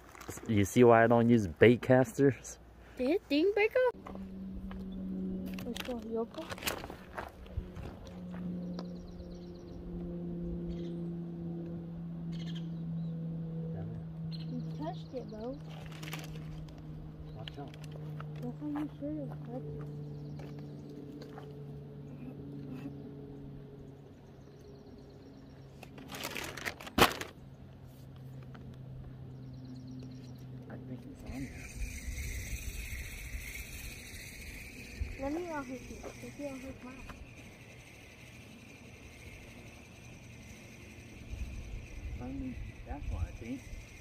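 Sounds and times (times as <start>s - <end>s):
crinkling and rustling: 0.0s - 0.5s, 15.7s - 16.8s, 25.8s - 27.4s
low motor hum: 0.0s - 44.0s
high chirps: 31.2s - 44.0s.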